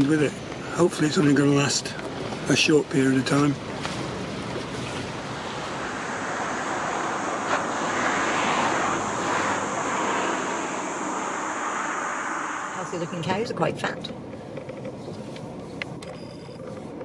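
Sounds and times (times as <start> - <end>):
gusty wind rushing: 3.6 - 14.4.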